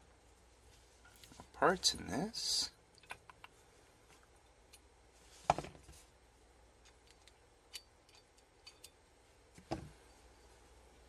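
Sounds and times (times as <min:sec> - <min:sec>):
small metal ticks and clicks: 0:06.8 - 0:09.0.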